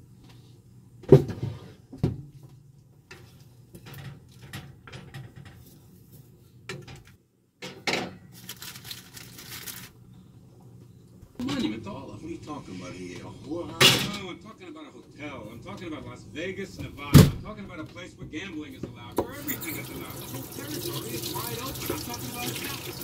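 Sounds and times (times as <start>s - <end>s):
low steady hum: 9.3s - 23.0s
loud knocks in kitchen: 17.1s - 17.4s.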